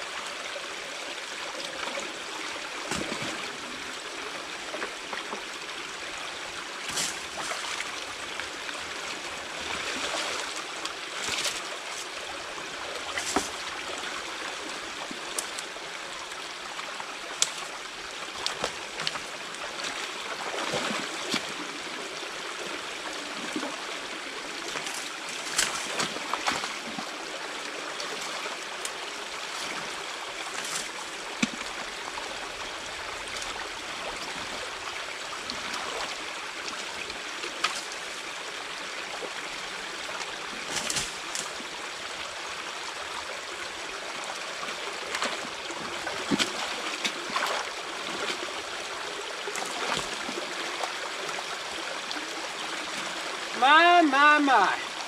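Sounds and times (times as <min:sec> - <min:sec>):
water trickling through dam: 0:00.0 - 0:55.0
splashes: 0:02.8 - 0:03.8, 0:06.8 - 0:08.2, 0:09.6 - 0:12.1, 0:13.0 - 0:14.2, 0:17.4 - 0:22.0, 0:24.4 - 0:27.3, 0:44.6 - 0:52.3.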